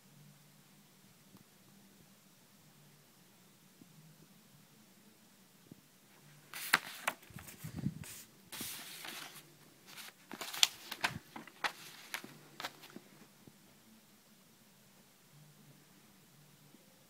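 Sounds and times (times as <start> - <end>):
paper sheets rustling and crinkling: 6.1 - 13.3.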